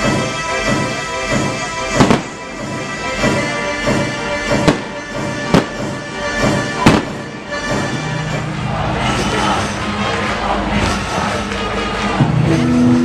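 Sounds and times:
fireworks bangs: 0:00.0 - 0:08.5
loud music: 0:00.0 - 0:13.0.

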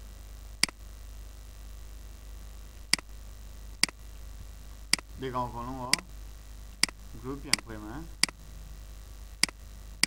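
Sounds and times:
low mains hum: 0:00.0 - 0:10.0
computer mouse clicks: 0:09.4 - 0:09.6.

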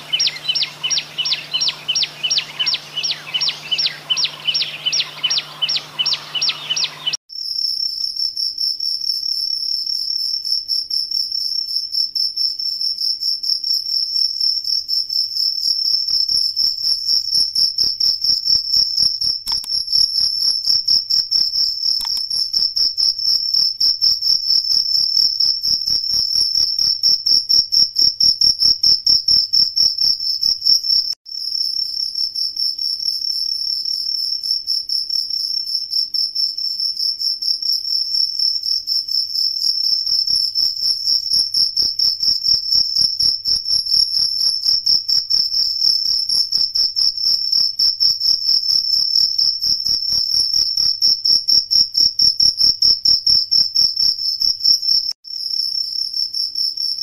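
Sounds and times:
crickets chirping: 0:00.0 - 0:07.6
continuous high-pitched cricket trill: 0:00.0 - 0:57.0.

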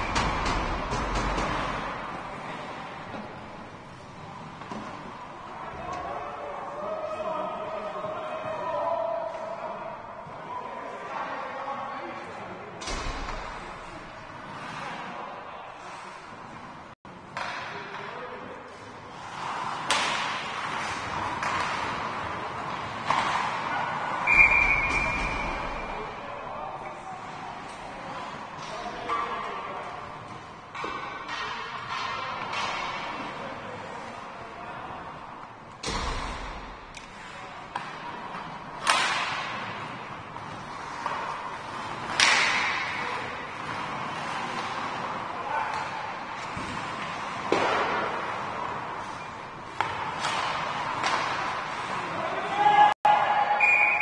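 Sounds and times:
hits against rink boards: 0:00.0 - 0:02.3, 0:17.3 - 0:18.1, 0:19.4 - 0:26.0, 0:30.7 - 0:33.3, 0:35.8 - 0:48.4, 0:49.7 - 0:52.0
crowd noise at hockey game: 0:00.0 - 0:54.0.

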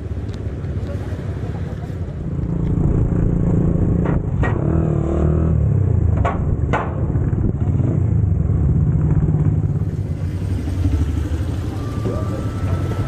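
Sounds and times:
small motorcycle engine: 0:07.5 - 0:13.0.

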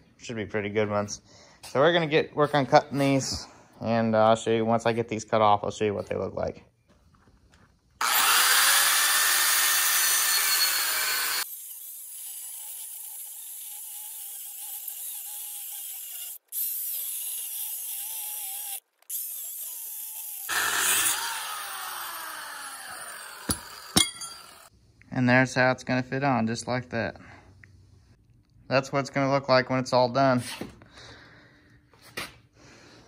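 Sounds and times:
angle grinder cutting steel: 0:08.0 - 0:24.7.

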